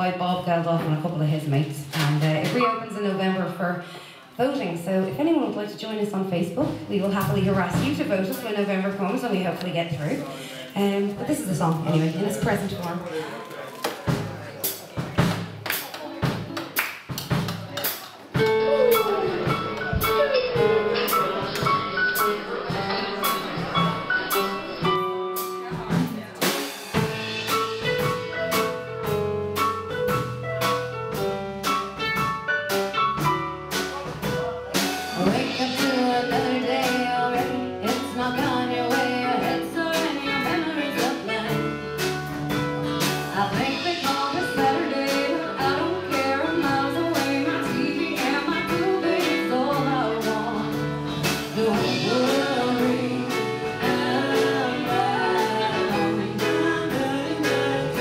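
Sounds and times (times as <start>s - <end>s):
live band playing: 0.0s - 58.0s
woman singing lead vocal: 35.2s - 41.8s, 43.3s - 58.0s.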